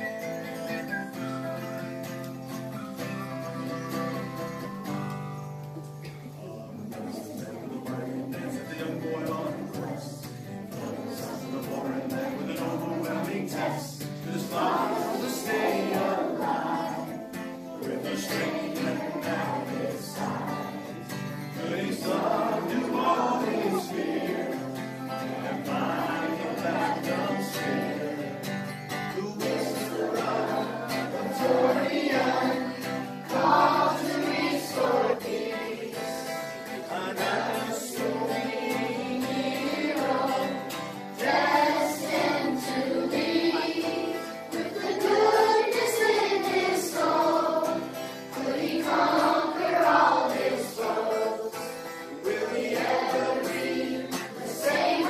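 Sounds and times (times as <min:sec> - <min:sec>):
acoustic guitar strumming: 0:00.0 - 0:55.0
man singing: 0:06.6 - 0:20.9, 0:21.6 - 0:31.7, 0:36.4 - 0:38.8
children singing in unison: 0:06.9 - 0:55.0.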